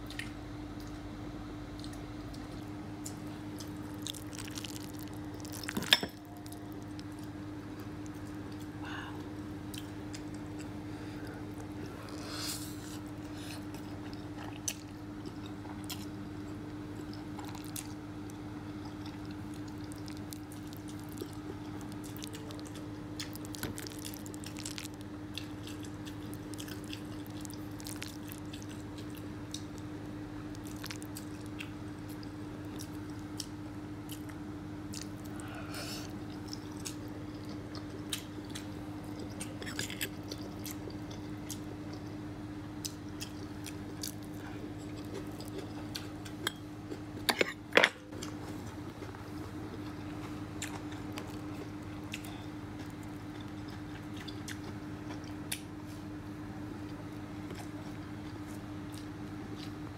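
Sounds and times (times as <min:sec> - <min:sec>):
chewing and mouth sounds: 0:00.0 - 0:01.0, 0:01.7 - 0:56.1, 0:56.8 - 0:59.9
steady low hum: 0:00.0 - 0:59.9.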